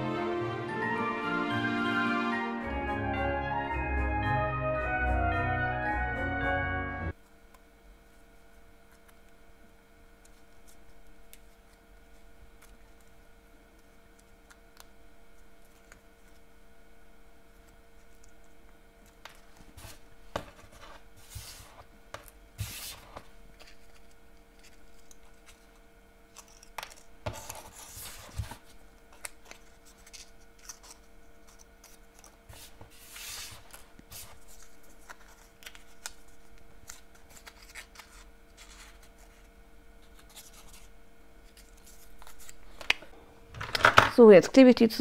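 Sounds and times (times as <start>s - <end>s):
faint steady hum: 6.6s - 45.0s
paper rustling and crinkling: 22.6s - 43.0s.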